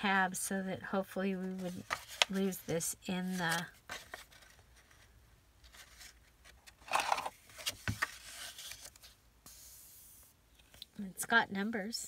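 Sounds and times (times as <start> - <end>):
paper and fabric rustling: 1.4 - 2.6.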